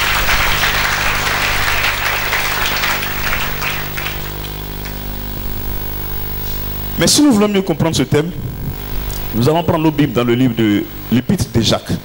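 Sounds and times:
congregation applauding: 0.0 - 5.4
low sound system hum: 0.0 - 12.0.

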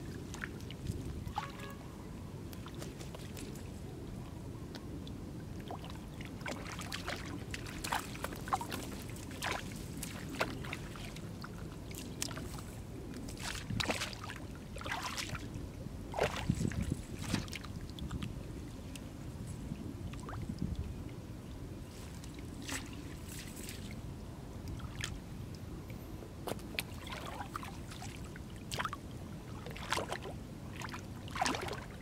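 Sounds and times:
muddy water splashing: 5.5 - 19.0, 22.0 - 24.0, 26.5 - 32.0.

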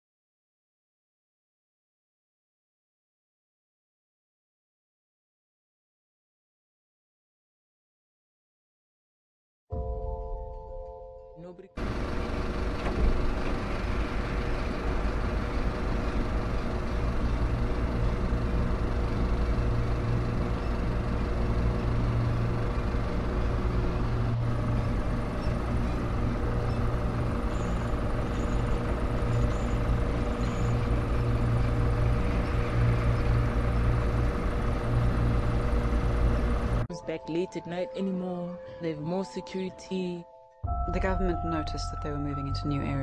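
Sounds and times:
engine-like mechanical drone: 11.8 - 37.4.

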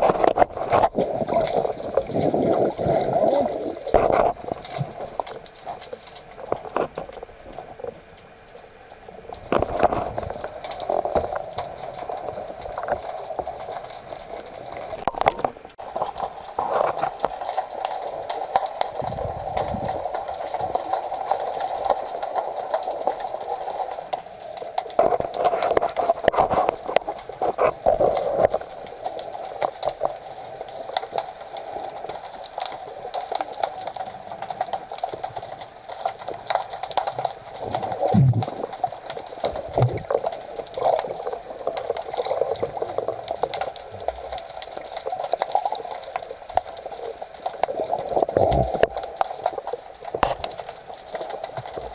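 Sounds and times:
muffled underwater noise: 0.0 - 51.9
small clicks and knocks: 30.8 - 51.9.

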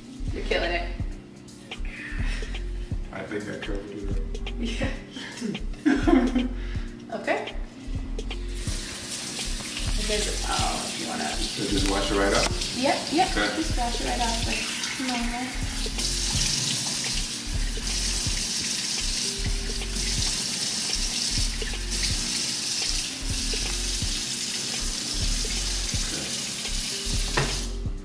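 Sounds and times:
faucet running into steel sink: 8.6 - 27.8.

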